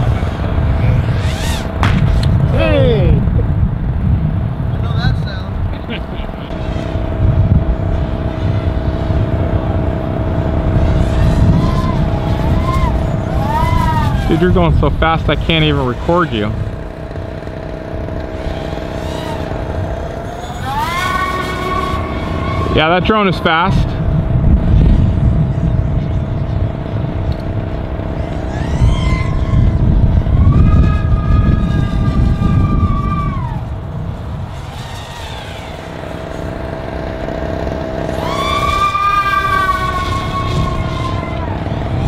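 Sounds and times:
drone motors whining: 0:00.0 - 0:42.0
low rumble: 0:00.0 - 0:42.0.

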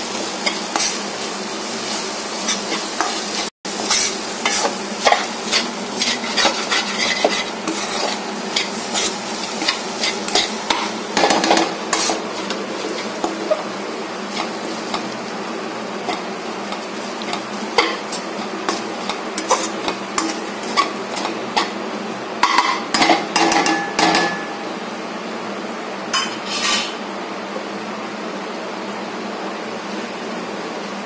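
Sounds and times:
steady background hum: 0:00.0 - 0:31.0
spatula scraping a pan: 0:00.4 - 0:01.0, 0:01.7 - 0:21.8, 0:26.2 - 0:27.0.

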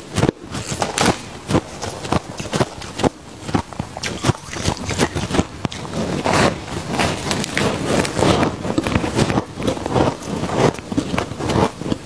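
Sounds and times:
chewing crunchy ice: 0:00.6 - 0:12.0
spoon scooping frost: 0:04.0 - 0:09.2.

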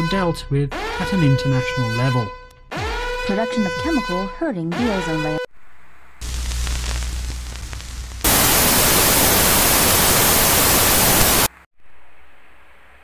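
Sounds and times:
low crackling hum: 0:05.5 - 0:13.0
white-noise static burst: 0:05.6 - 0:13.0
faint hiss: 0:06.2 - 0:13.0.

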